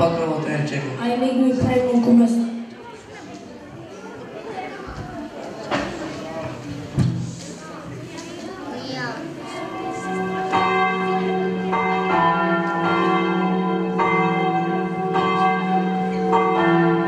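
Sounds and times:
bells ringing: 0:09.5 - 0:17.0.

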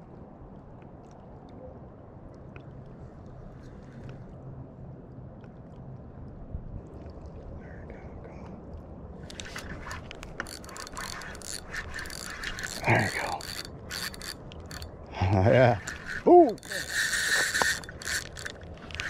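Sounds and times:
fishing reel clicking rapidly: 0:09.3 - 0:19.0.

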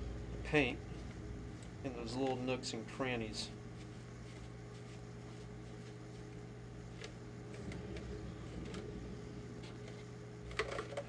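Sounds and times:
steady low hum: 0:00.0 - 0:11.0
cloth rubbing on plastic: 0:03.7 - 0:06.4.

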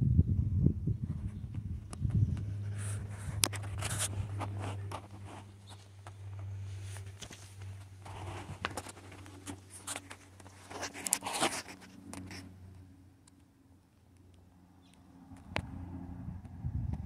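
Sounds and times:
steady low hum: 0:00.0 - 0:17.0
rustling and scuffing handling noise: 0:02.4 - 0:12.6.

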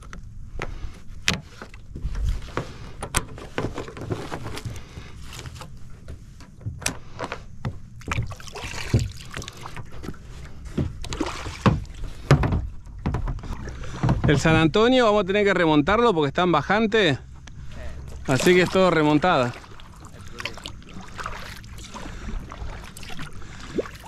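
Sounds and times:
kayak knocks and clicks: 0:00.0 - 0:14.9.

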